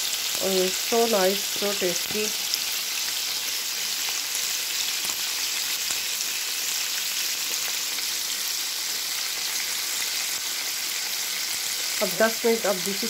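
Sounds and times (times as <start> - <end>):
chicken deep-frying in oil: 0.0 - 13.0.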